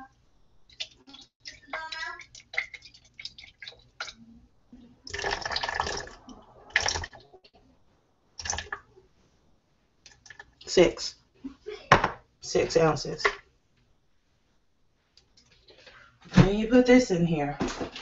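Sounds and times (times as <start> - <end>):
water pouring into plastic container: 0.7 - 4.2, 5.1 - 7.3, 8.4 - 8.9.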